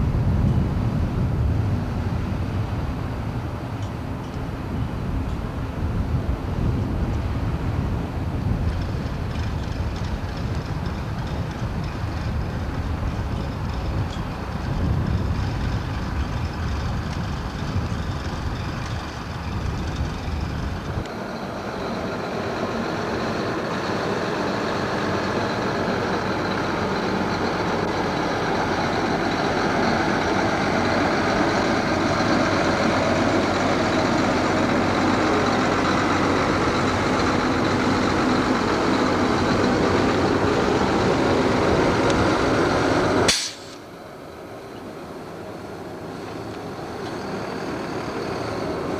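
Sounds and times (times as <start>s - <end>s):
wind rumbling on microphone: 0.0s - 22.2s
heavy vehicle engines running: 0.0s - 48.9s
road noise: 0.0s - 48.9s.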